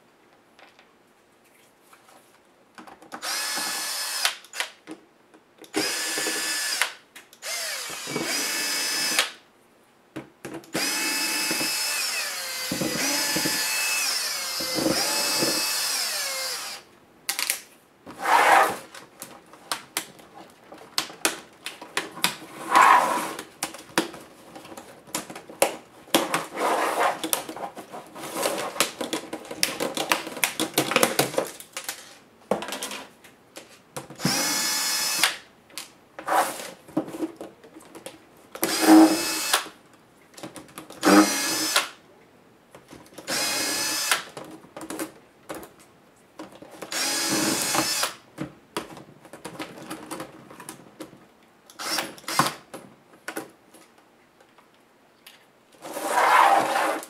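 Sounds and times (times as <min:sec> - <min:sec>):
electric screwdriver whirring: 0:03.2 - 0:04.6, 0:05.7 - 0:09.3, 0:10.8 - 0:16.8, 0:34.2 - 0:35.4, 0:38.7 - 0:39.6, 0:41.0 - 0:41.9, 0:43.3 - 0:44.2, 0:46.9 - 0:48.2, 0:51.8 - 0:52.5
plastic clicks and snaps: 0:17.3 - 0:17.7.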